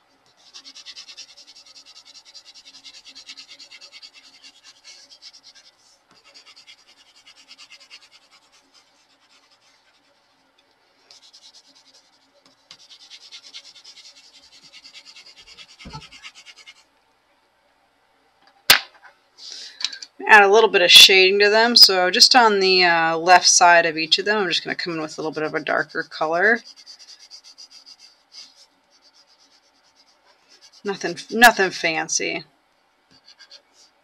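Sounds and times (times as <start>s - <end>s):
pencil scratching on paper: 0.2s - 10.4s, 11.1s - 16.9s, 24.3s - 31.8s, 33.1s - 34.0s.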